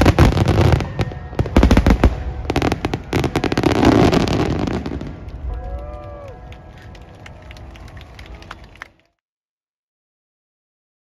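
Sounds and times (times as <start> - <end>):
fireworks bangs and crackles: 0.0 - 8.0
fireworks rumbling: 0.0 - 8.9.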